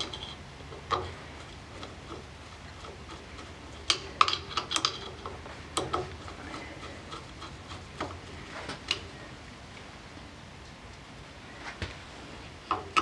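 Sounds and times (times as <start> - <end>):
screwdriver clicking on metal: 2.8 - 8.2.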